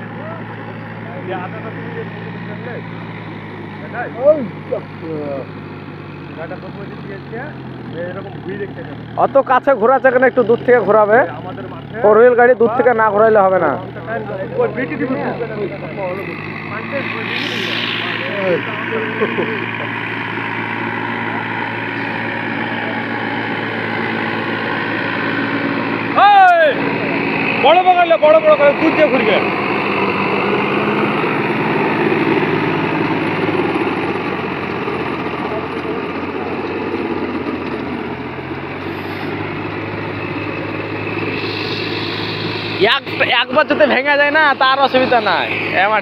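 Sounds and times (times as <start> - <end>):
tractor diesel engine running: 0.0 - 46.0.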